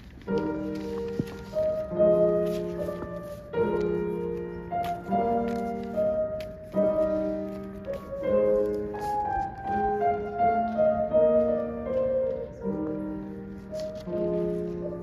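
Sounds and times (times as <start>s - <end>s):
grand piano melody: 0.0s - 15.0s.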